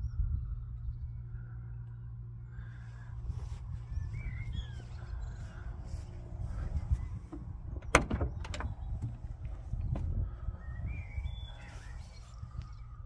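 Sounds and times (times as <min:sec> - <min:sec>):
steady low rumble: 0:00.0 - 0:13.0
car door latch click: 0:07.3 - 0:09.2
small clicks of door moving: 0:07.3 - 0:09.2.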